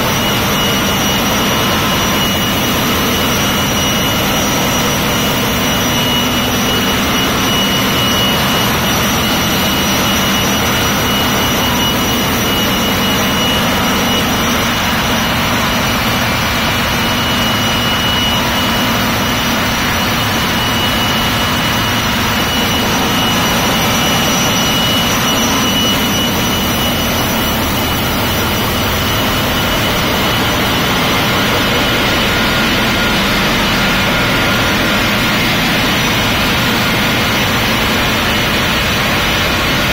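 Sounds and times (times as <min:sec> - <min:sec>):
engine room machinery hum: 0:00.0 - 0:39.9
thin steady whine: 0:00.0 - 0:39.9.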